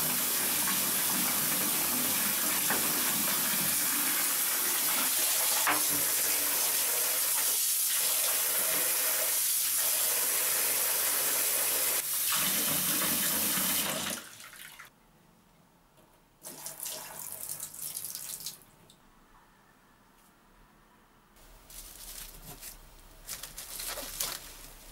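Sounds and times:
tap water running into basin: 0.0 - 14.9, 16.4 - 18.6.

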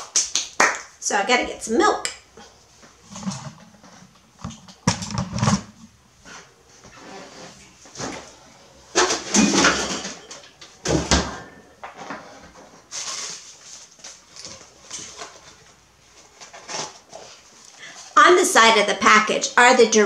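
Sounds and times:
refrigerator door opening and shutting: 8.0 - 12.3.

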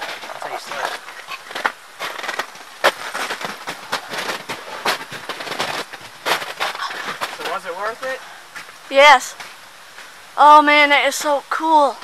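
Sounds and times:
ice cracking: 0.0 - 8.2
snow and ice crunching: 0.0 - 11.9.

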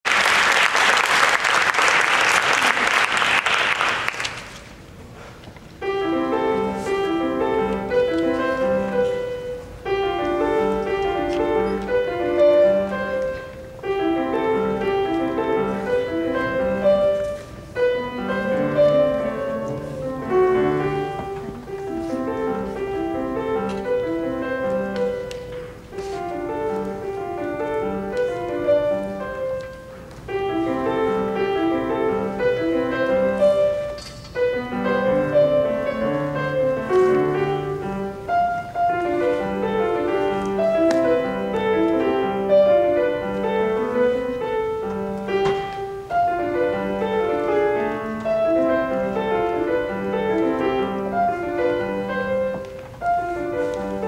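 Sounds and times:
audience applauding: 0.0 - 4.8
solo grand piano piece: 0.0 - 54.0.

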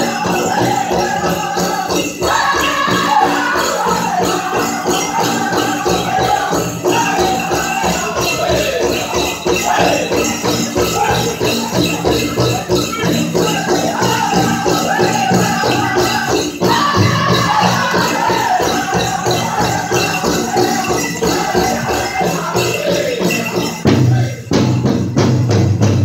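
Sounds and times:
jingling leg bells: 0.0 - 25.5
drum group singing: 0.0 - 26.0
steady drumbeat: 0.0 - 26.0.

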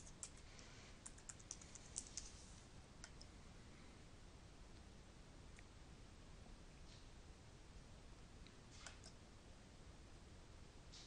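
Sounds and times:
faint keyboard typing: 0.0 - 2.4, 3.0 - 3.3, 8.4 - 9.2.

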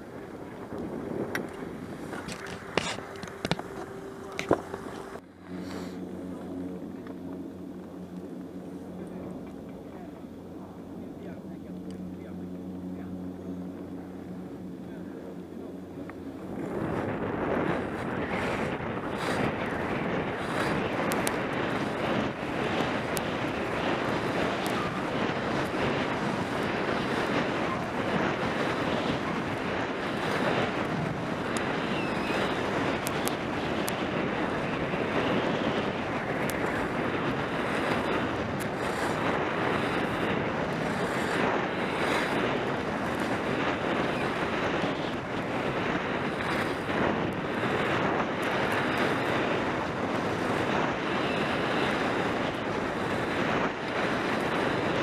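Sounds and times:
wind on microphone: 0.0 - 55.0
skis sliding on snow: 0.8 - 6.0.

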